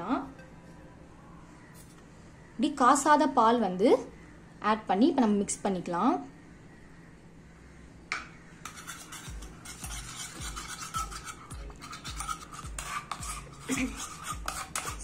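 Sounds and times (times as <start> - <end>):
spoon scraping paste in bowl: 8.6 - 15.0.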